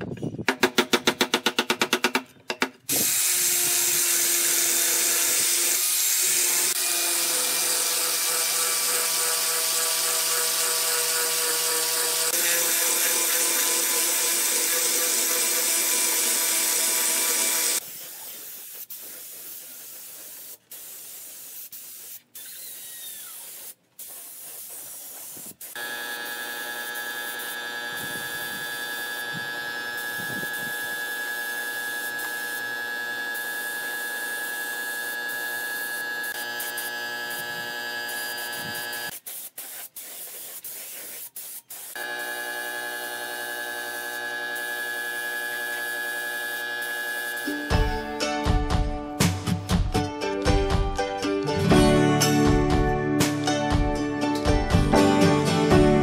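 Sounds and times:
angle grinder sanding wood: 0:02.9 - 0:19.9, 0:24.2 - 0:48.2
spray gun hissing: 0:11.4 - 0:25.8, 0:26.8 - 0:32.6, 0:33.3 - 0:43.8, 0:44.6 - 0:48.1.

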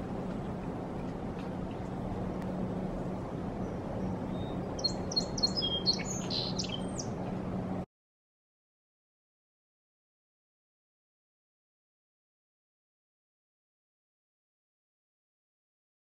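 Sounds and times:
low hum and rush: 0:00.0 - 0:07.9
bird whistled chirps: 0:04.4 - 0:07.1.

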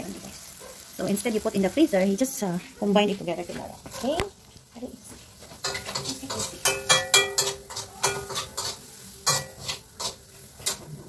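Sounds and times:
sausage sizzling: 0:00.0 - 0:11.0
spoon scraping a frying pan: 0:05.1 - 0:11.0.

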